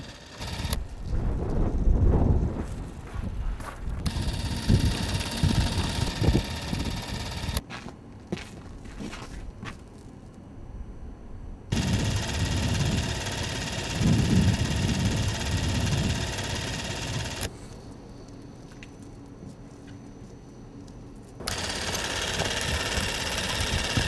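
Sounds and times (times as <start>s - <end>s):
film projector mechanical rattle: 0.0s - 0.8s, 4.0s - 7.6s, 11.7s - 17.5s, 21.4s - 24.0s.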